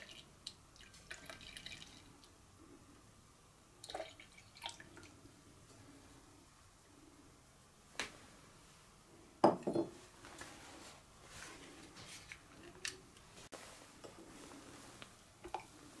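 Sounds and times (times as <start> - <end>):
kitchenware knocking and clinking: 9.4 - 10.0.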